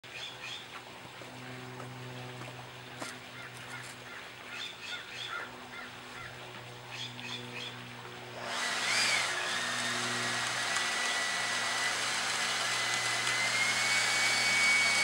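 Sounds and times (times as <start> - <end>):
birds chirping: 0.1 - 0.8, 1.8 - 7.9
steady low hum: 0.1 - 15.0.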